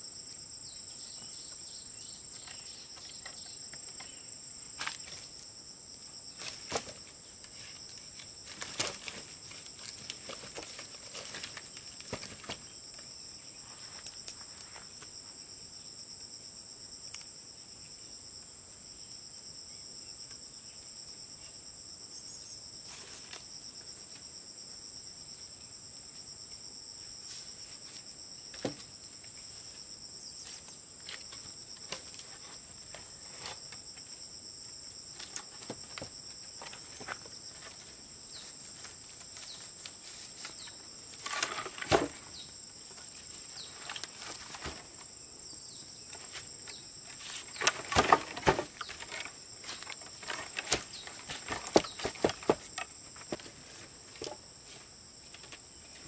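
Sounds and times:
high-pitched insect chorus: 0:00.0 - 0:56.0.

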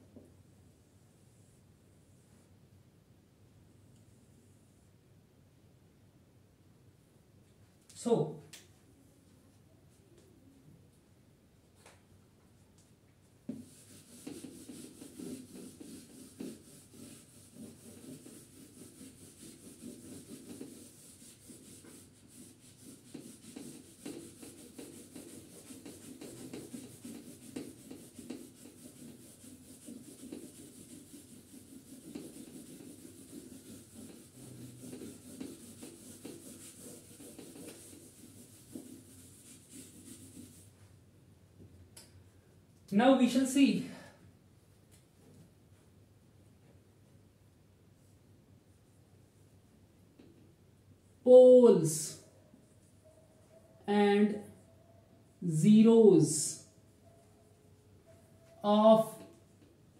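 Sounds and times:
eraser rubbing a whiteboard: 0:13.5 - 0:41.0, 0:58.1 - 0:59.9.

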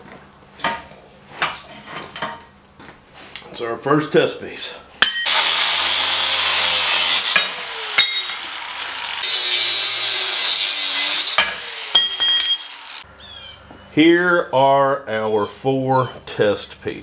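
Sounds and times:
short metallic rings: 0:05.0 - 0:05.3, 0:07.4 - 0:08.6, 0:11.4 - 0:12.8
angle grinder cutting steel: 0:05.0 - 0:13.1
motor winding down whine: 0:05.3 - 0:13.0.

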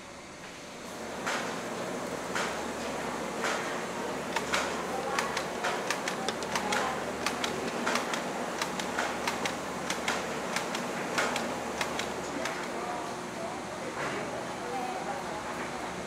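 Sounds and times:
sharp clicking and clacking: 0:03.4 - 0:12.8.

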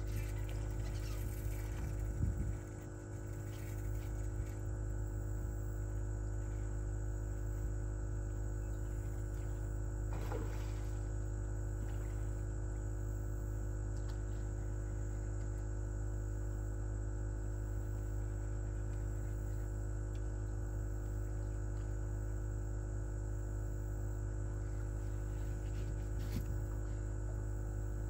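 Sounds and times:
held whining tones: 0:00.0 - 0:16.8
electric trolling motor humming: 0:00.0 - 0:28.0.

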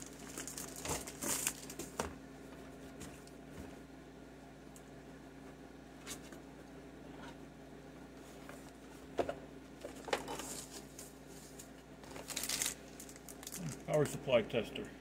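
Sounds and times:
plastic packaging crinkling: 0:00.0 - 0:02.0, 0:10.3 - 0:14.0
faint steady hum: 0:00.0 - 0:15.0.

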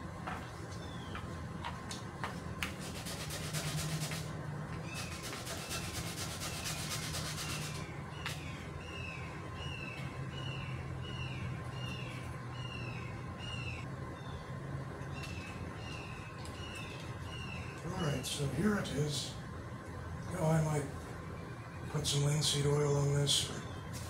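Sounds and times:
faint steady hum: 0:00.0 - 0:24.0
sandpaper rubbing on wood: 0:02.7 - 0:04.3, 0:04.9 - 0:07.8
bird whistling: 0:04.8 - 0:14.4.

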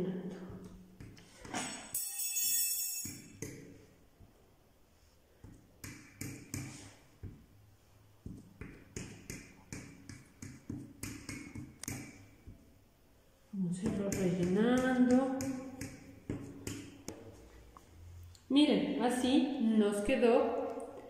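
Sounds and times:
short ringing clink: 0:01.8 - 0:03.4.

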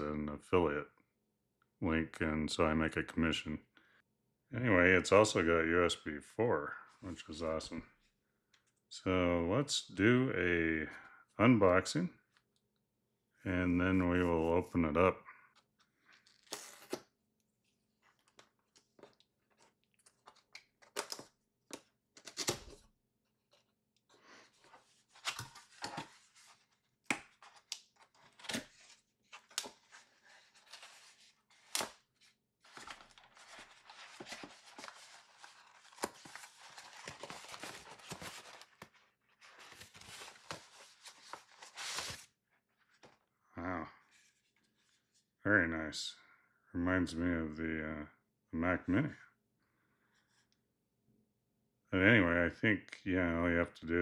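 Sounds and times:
paper wrap crinkling: 0:24.6 - 0:42.3.

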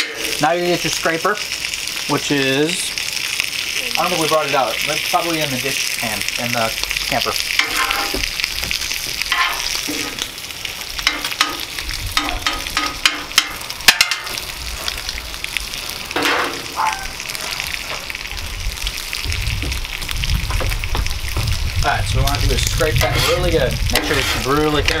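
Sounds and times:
food sizzling on griddle: 0:00.0 - 0:25.0.

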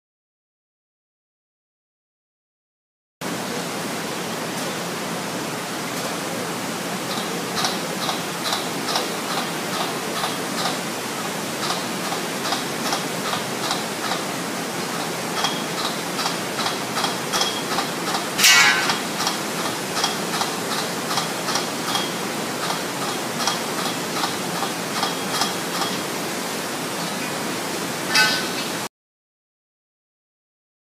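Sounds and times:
hammering on steel: 0:17.0 - 0:19.4, 0:28.1 - 0:28.6
ringing metal clang: 0:18.4 - 0:19.1, 0:28.1 - 0:28.7.

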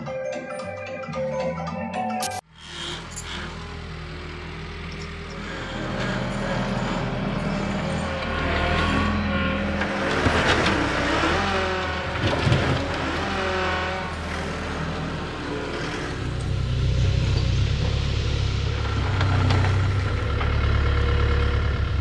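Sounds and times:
deep engine drone: 0:02.4 - 0:22.0
high whine of moving tracks: 0:02.5 - 0:12.2, 0:12.8 - 0:22.0
diesel engine running: 0:02.5 - 0:22.0.

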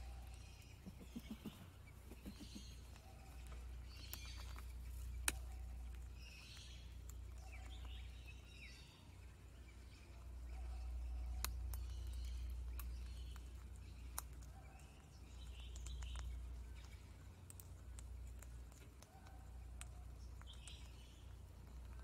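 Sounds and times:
faint bird chirps: 0:00.0 - 0:17.4
parrot beak cracking seeds: 0:02.2 - 0:08.1, 0:11.2 - 0:22.0.

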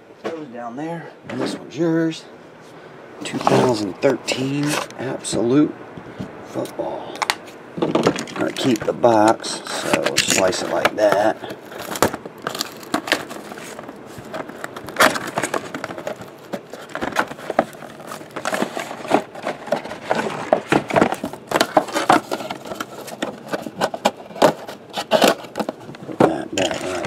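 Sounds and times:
cardboard box scraping and tapping: 0:09.8 - 0:27.0.

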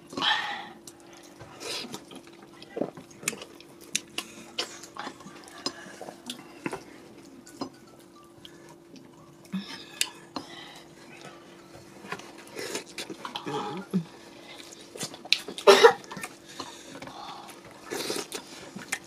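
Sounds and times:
steady low hum: 0:00.0 - 0:19.0
wet mouth clicks and chewing: 0:00.8 - 0:07.8, 0:14.6 - 0:19.0.

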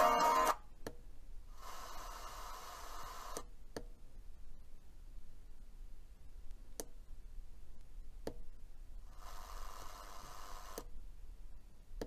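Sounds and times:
radio hiss through speaker: 0:01.6 - 0:03.4.

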